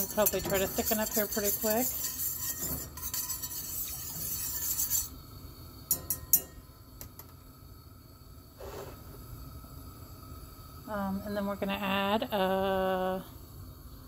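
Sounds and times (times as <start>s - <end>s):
whisk clinking on metal pan: 0.0s - 5.1s, 5.9s - 6.7s
whisk swishing in a saucepan: 0.0s - 5.2s.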